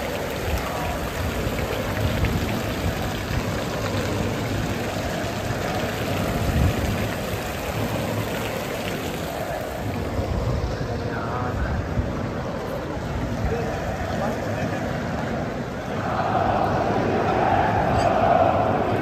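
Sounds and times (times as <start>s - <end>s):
water splashing into stone basin: 0.0s - 10.2s.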